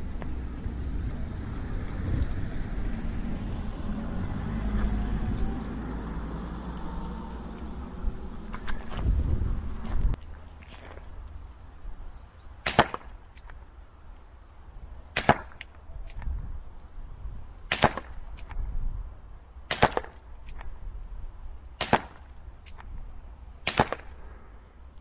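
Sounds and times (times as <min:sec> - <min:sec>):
air pistol shots: 0:12.6 - 0:13.2, 0:15.1 - 0:15.7, 0:17.7 - 0:18.5, 0:19.7 - 0:20.6, 0:21.8 - 0:22.8, 0:23.6 - 0:24.2.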